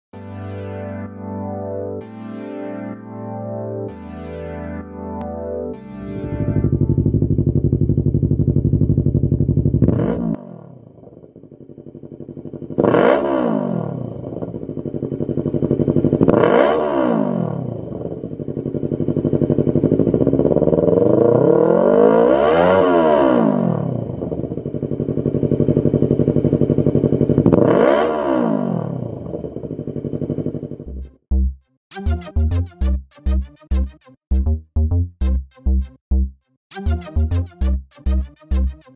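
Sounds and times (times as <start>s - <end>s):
motorcycle engine idling and revving: 6.2s - 31.4s.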